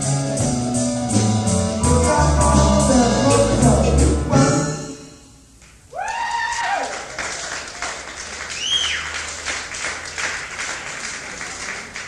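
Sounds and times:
person whooping: 5.9s - 7.5s
audience clapping and cheering: 5.9s - 12.0s
high whistle: 8.6s - 9.1s.

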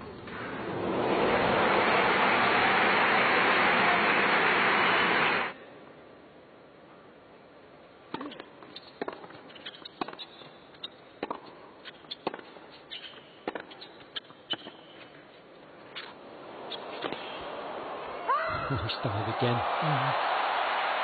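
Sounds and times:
tennis ball bouncing: 8.1s - 15.1s, 15.9s - 18.0s
racket striking tennis ball: 11.2s - 14.8s, 16.0s - 18.0s.

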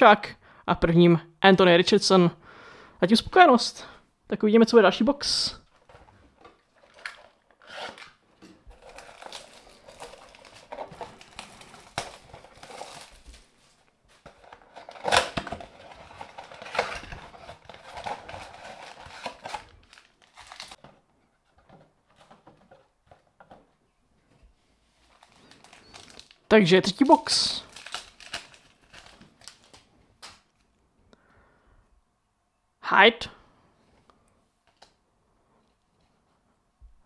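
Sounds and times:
cardboard and foil rustling: 5.7s - 23.2s, 24.9s - 30.4s
cardboard tearing: 6.8s - 20.8s, 27.7s - 29.8s.

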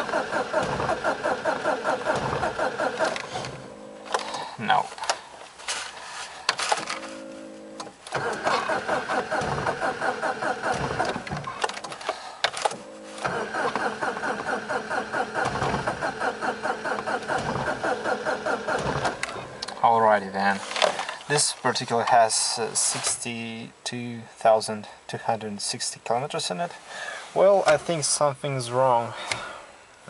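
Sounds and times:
starter cranking engine: 0.0s - 4.4s, 8.1s - 19.4s.

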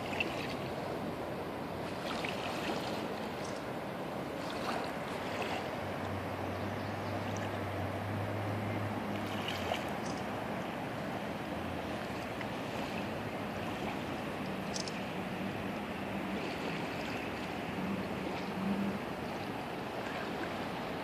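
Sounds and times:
rushing floodwater: 0.0s - 21.0s.

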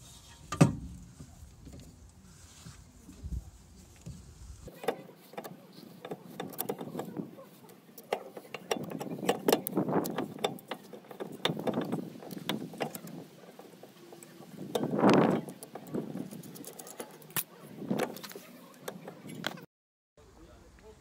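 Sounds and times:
metallic clicks and scraping: 4.0s - 19.6s.

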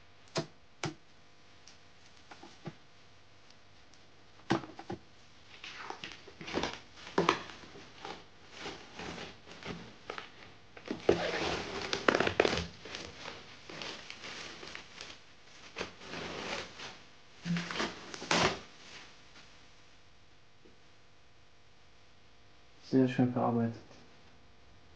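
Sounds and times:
plastic packaging crinkling: 5.5s - 18.7s.

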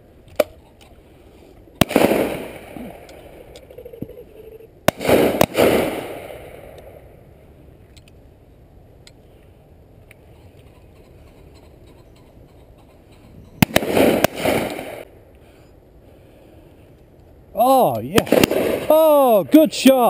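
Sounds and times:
loud shotgun shots with echo: 1.8s - 3.1s, 4.9s - 6.7s, 13.6s - 15.0s, 18.1s - 19.1s
distant gunshots: 1.8s - 3.4s, 4.9s - 6.8s, 13.6s - 15.1s, 18.1s - 19.0s.

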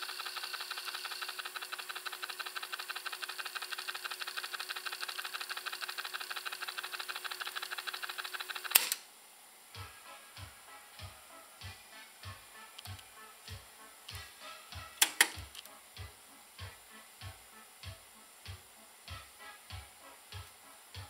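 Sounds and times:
cassette deck fast-winding rattle: 0.0s - 9.0s, 15.0s - 15.7s
faint steady hum: 8.7s - 21.0s
cassette mechanism clunk: 15.0s - 15.6s.

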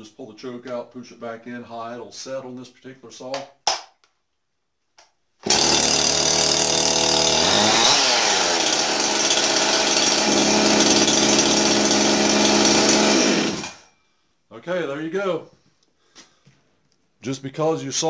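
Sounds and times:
chainsaw engine running: 5.4s - 13.9s.

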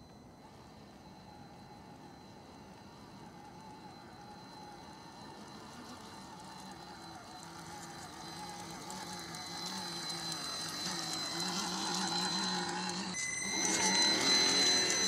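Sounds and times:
electric motor whining: 1.2s - 15.0s.

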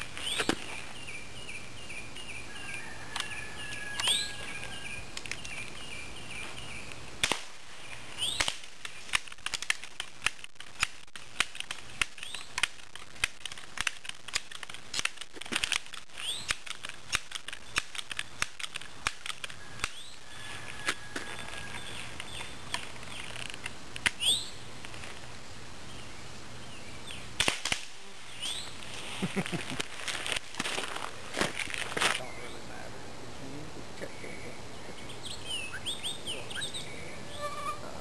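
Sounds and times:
birds chirping: 0.0s - 9.5s, 12.0s - 12.6s, 16.0s - 17.9s, 18.8s - 27.4s, 28.0s - 30.1s, 31.0s - 38.0s
pellet pistol shots: 27.4s - 28.6s.

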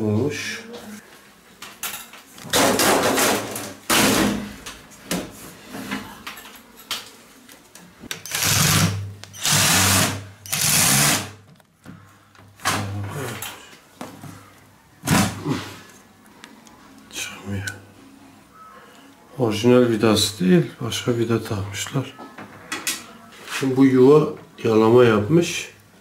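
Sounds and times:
cordless drill running: 8.3s - 11.3s.

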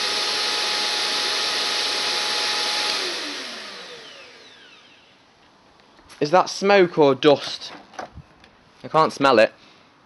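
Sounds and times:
motor winding down: 0.0s - 5.2s
vacuum cleaner whining: 0.0s - 5.2s.

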